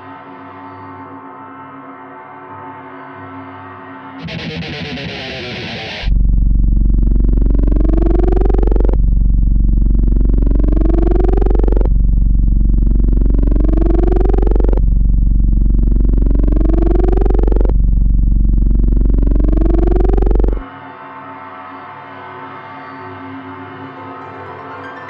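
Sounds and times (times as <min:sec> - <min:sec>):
distorted synthesizer tone: 0:04.2 - 0:20.7
deep bass hum: 0:05.9 - 0:20.6.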